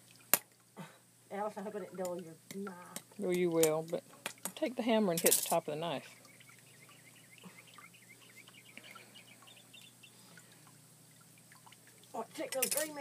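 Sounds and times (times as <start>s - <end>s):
faint high chirps: 6.0s - 10.6s.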